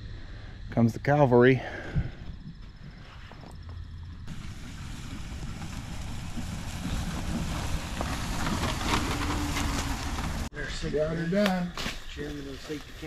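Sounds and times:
truck engine rumble: 1.6s - 10.6s
tyres rushing over grass: 4.3s - 13.0s.

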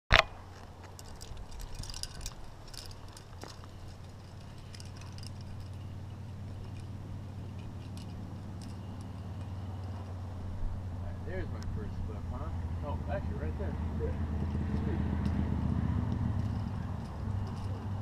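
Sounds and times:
steady low rumble: 0.2s - 18.0s
climbing hardware clinking: 0.5s - 10.2s, 16.3s - 18.0s.

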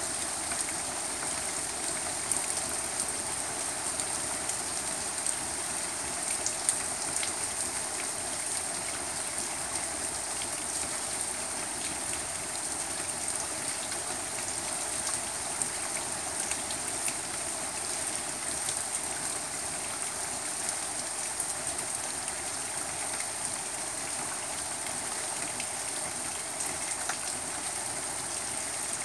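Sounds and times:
steady rain falling: 0.0s - 29.0s.

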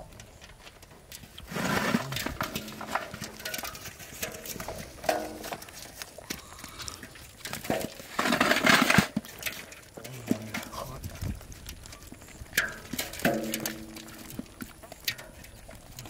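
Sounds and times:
fish splashing in metal basin: 6.7s - 11.0s, 12.1s - 16.0s.

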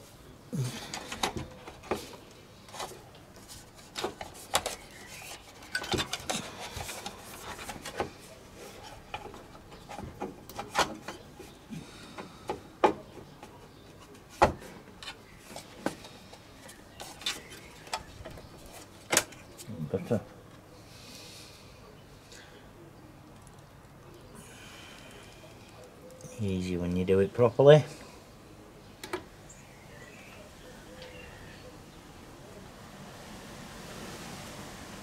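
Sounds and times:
plastic parts clicking and knocking: 3.9s - 8.2s, 15.8s - 19.7s.

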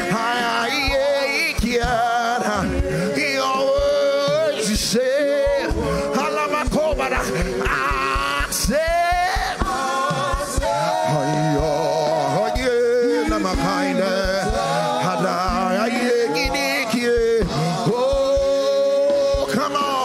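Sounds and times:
band accompaniment with beat: 0.0s - 20.0s
person singing long notes: 0.0s - 20.0s.

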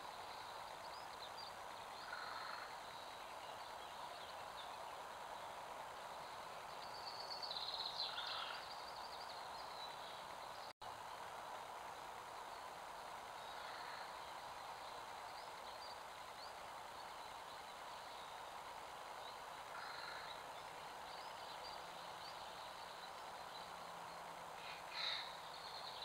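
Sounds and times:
faint bird chirps: 0.0s - 11.3s, 11.9s - 26.0s
microphone hiss: 0.0s - 26.0s.

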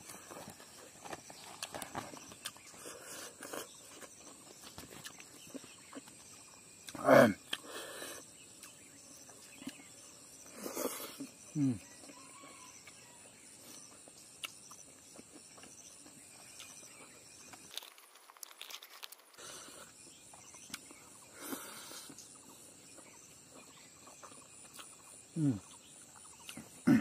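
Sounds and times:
crackling and clicking of eating: 0.0s - 27.0s
high insect hiss: 0.2s - 26.9s
man humming: 11.5s - 11.8s, 25.4s - 25.7s.

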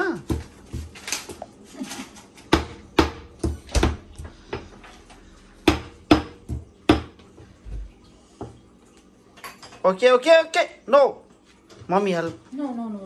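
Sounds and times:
stone pestle pounding in mortar: 2.5s - 4.7s, 5.6s - 7.2s.

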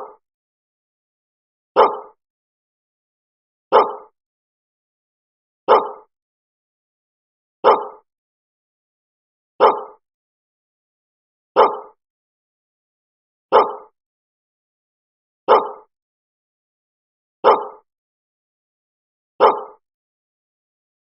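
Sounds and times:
dog barking: 1.8s - 2.2s, 3.7s - 4.2s, 5.7s - 6.1s, 7.6s - 8.1s, 9.6s - 10.0s, 11.6s - 12.0s, 13.5s - 14.0s, 15.5s - 15.9s, 17.4s - 17.9s, 19.4s - 19.8s.

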